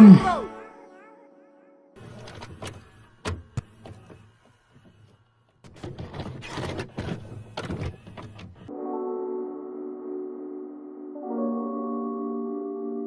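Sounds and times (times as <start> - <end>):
small electric motor whirring: 2.0 - 8.7.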